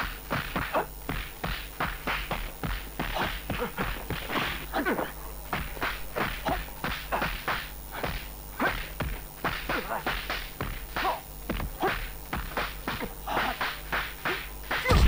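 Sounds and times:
punch smacks: 14.8s - 15.0s.

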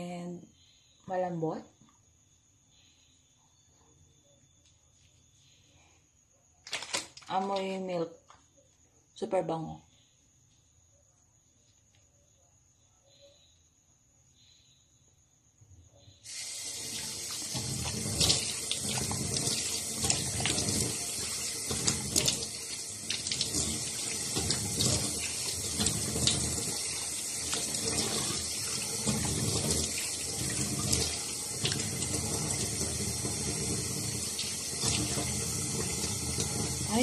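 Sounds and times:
tap water running into sink: 16.3s - 37.0s.

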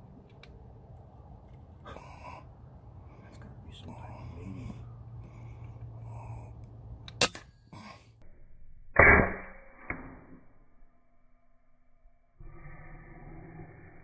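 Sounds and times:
faint report: 1.0s - 6.8s.

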